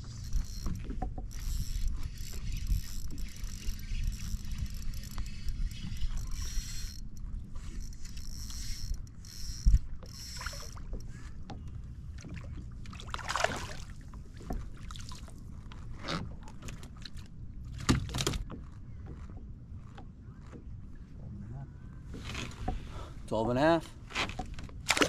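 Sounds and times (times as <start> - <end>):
fishing reel cranking: 0.1 - 11.1.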